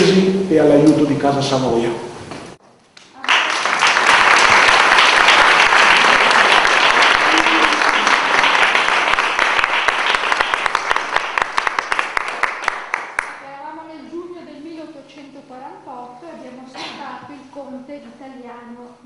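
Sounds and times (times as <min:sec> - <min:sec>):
audience applauding: 0:03.2 - 0:13.4.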